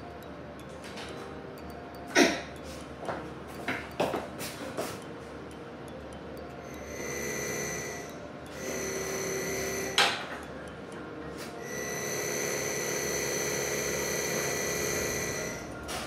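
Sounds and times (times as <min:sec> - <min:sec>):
drill press whining: 0:06.8 - 0:10.0, 0:11.6 - 0:15.7.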